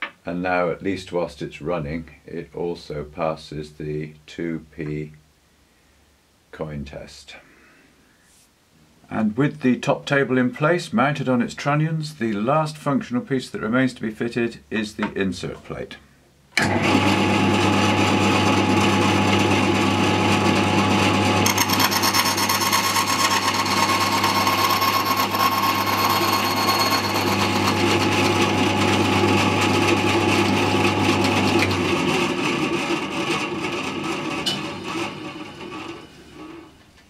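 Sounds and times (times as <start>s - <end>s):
bandsaw motor hum: 16.6s - 36.8s
saw winding down: 21.3s - 28.6s
saw blade cutting wood: 21.4s - 28.5s.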